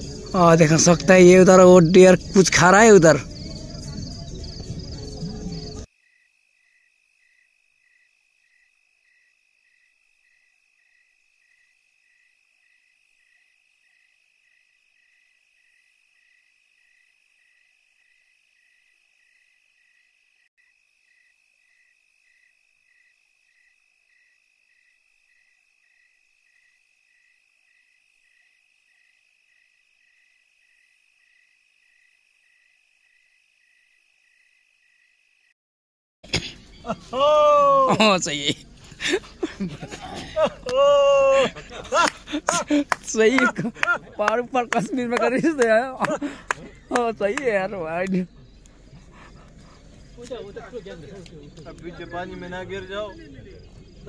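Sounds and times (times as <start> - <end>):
night insects trilling: 0.0 - 35.6, 36.3 - 54.0
regular insect chirp: 0.0 - 35.6, 36.3 - 54.0.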